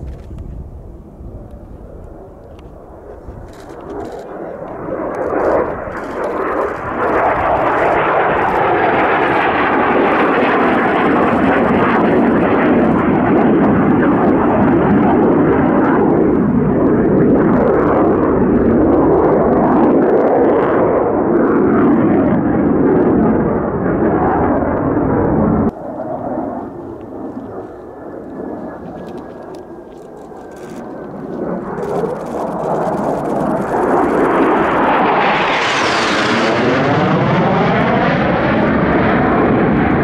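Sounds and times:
jet engine roar: 0.0s - 40.0s.

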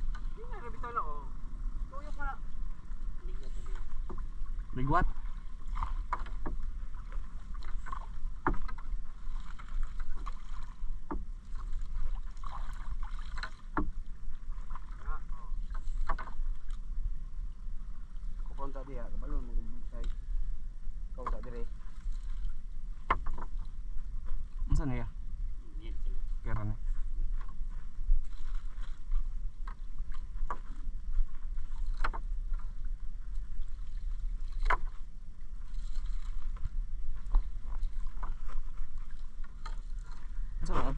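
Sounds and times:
water splashing and dripping: 3.5s - 13.9s
knocks against boat: 8.4s - 8.9s, 13.4s - 14.0s.

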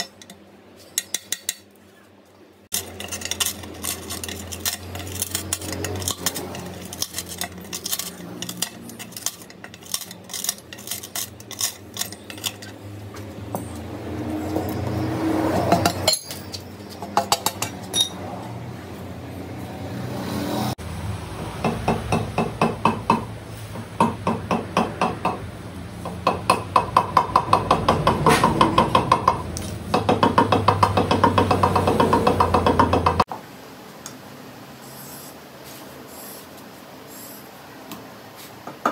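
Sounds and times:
glass chips cracking and clinking: 2.7s - 12.8s.

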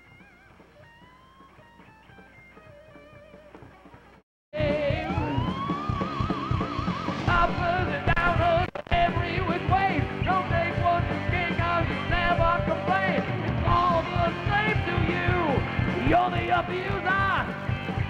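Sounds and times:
bass guitar: 0.0s - 18.0s
electric guitar lead: 0.0s - 18.0s
drum beat: 4.6s - 18.0s.

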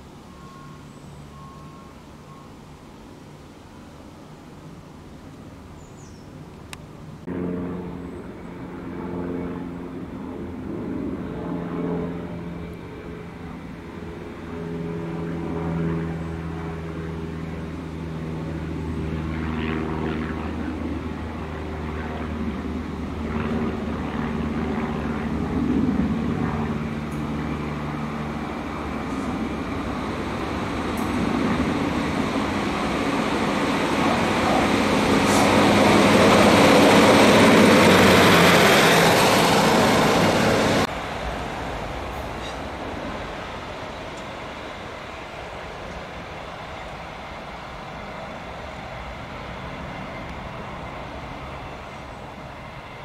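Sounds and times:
diesel engine droning: 0.0s - 5.8s, 7.0s - 53.0s
train wheels rumbling on rail: 29.0s - 53.0s.

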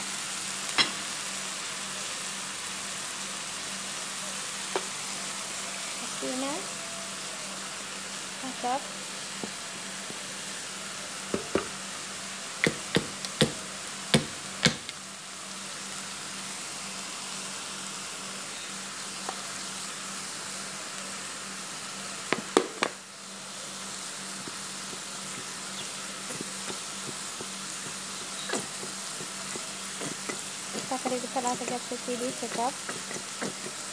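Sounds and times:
onions sizzling in oil: 0.0s - 33.9s.

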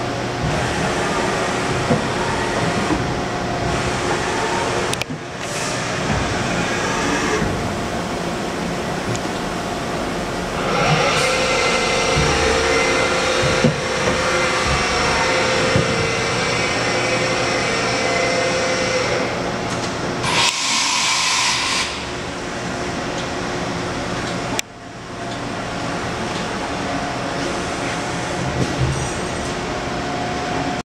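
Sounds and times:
machine whirring and whining: 0.0s - 30.8s.

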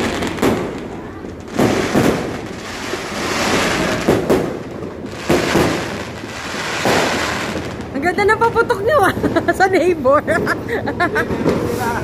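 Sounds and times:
fireworks crackling hiss: 0.0s - 8.1s, 11.4s - 12.0s
fireworks bangs: 0.0s - 9.5s, 11.2s - 12.0s.

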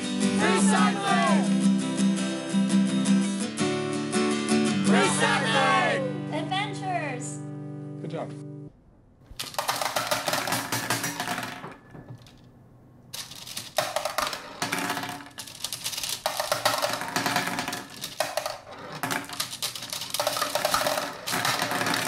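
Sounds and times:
marbles rattling in plastic toy: 9.3s - 12.5s, 13.1s - 22.0s.

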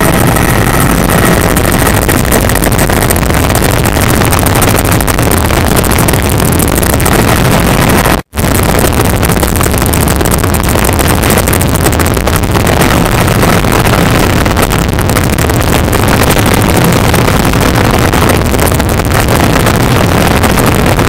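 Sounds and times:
helicopter engine and rotor: 0.0s - 5.1s, 5.7s - 8.2s.

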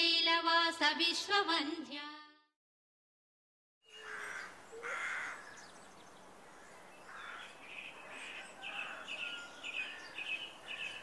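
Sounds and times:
crows cawing: 3.9s - 5.8s, 6.4s - 11.0s
small birds chirping: 3.9s - 11.0s.

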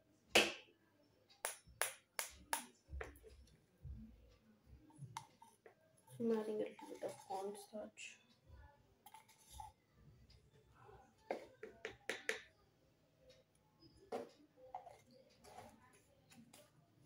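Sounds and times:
plastic spoon tapping plastic: 1.4s - 3.4s, 11.3s - 12.5s.

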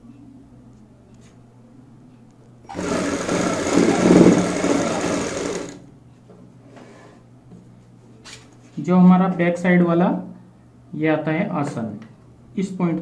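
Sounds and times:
sewing machine stitching: 2.7s - 5.8s.

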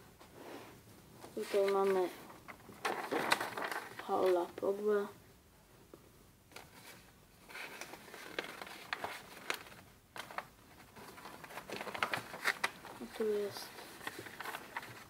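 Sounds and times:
paper crinkling: 1.2s - 4.6s, 6.5s - 15.0s.

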